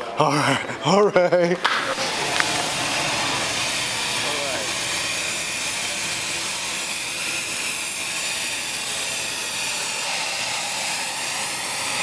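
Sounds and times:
jet turbine hiss and whine: 1.5s - 12.0s.

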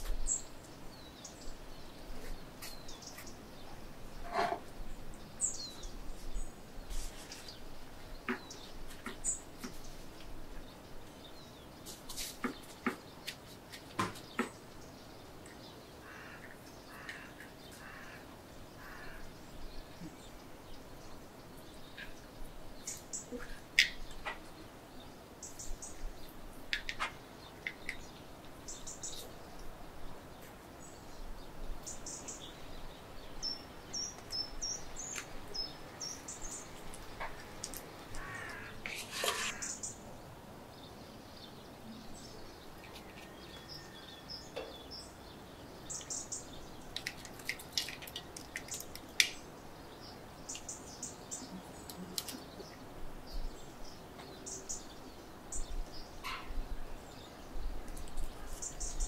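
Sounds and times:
birds chirping: 0.0s - 59.0s
leaf crinkling rustle: 5.6s - 7.8s, 34.1s - 39.8s, 46.8s - 49.5s.

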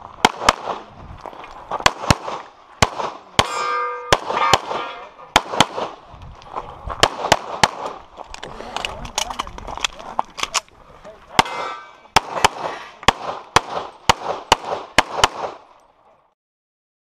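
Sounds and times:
pistol shots: 0.2s - 0.9s, 1.8s - 6.0s, 7.0s - 8.0s, 11.4s - 15.7s
metallic clang of steel target: 3.4s - 5.4s, 11.4s - 12.2s.

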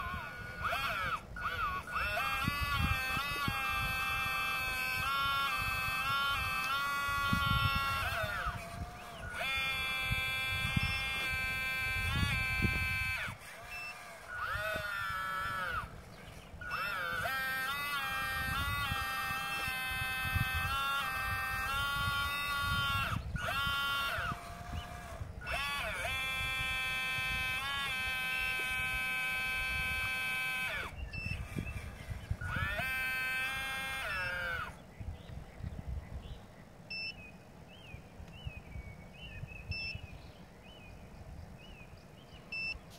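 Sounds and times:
hydraulic pump whining: 0.0s - 34.8s.

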